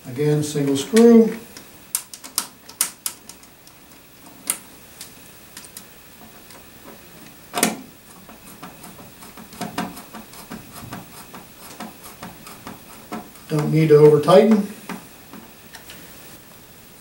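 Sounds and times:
screwdriver clicking on metal panel: 7.6 - 15.9.

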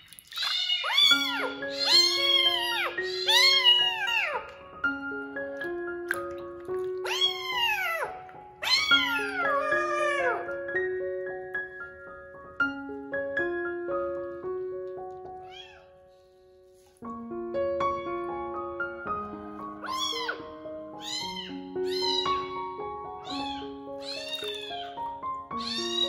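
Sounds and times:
kitten meowing: 0.3 - 4.6, 7.0 - 10.6, 15.4 - 15.9, 19.8 - 22.6, 23.2 - 25.0, 25.6 - 26.0
light melodic background music: 0.5 - 26.0.

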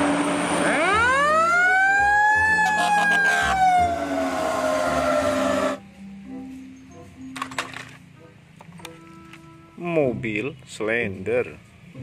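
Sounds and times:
engine and road noise: 0.0 - 12.0
mechanical siren wailing: 0.6 - 5.8.

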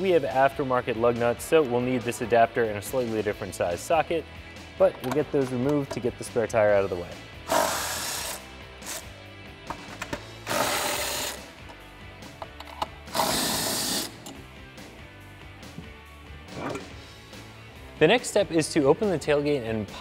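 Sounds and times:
electric impact wrench bursts: 7.5 - 9.0, 10.4 - 11.5, 13.1 - 14.3.

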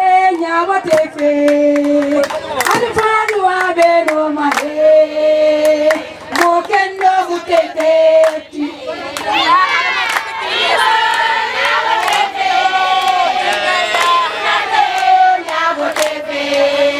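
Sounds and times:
women singing held notes: 0.0 - 16.9
hand claps: 0.3 - 4.7, 5.6 - 8.4, 15.0 - 16.7.

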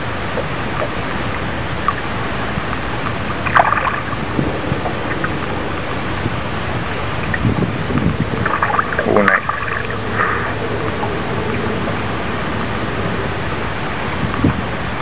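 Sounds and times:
water lapping: 0.0 - 15.0
wind rushing: 3.4 - 14.8.

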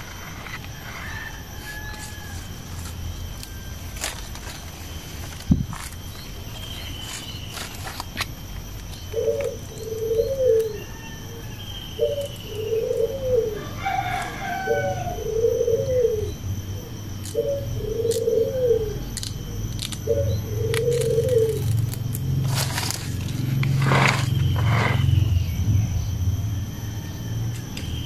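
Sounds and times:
dove cooing: 0.0 - 28.0
low rumble: 21.7 - 27.6.

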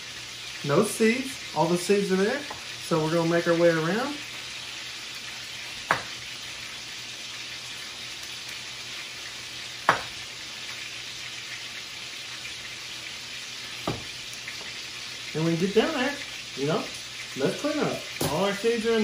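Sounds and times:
chicken frying hiss: 0.0 - 19.0
knife knocking on cutting board: 5.9 - 6.1, 9.9 - 10.1, 13.8 - 14.1.

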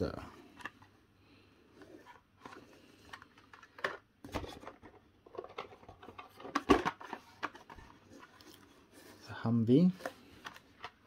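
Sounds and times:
packaging clicks and rustles: 1.8 - 8.8.

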